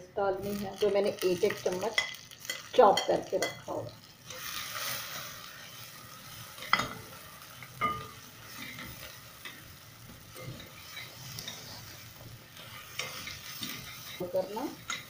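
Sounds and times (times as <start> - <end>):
onions sizzling in hot oil: 0.0 - 15.0
spatula clinking against pot: 6.6 - 7.0, 7.8 - 9.6, 14.8 - 15.0.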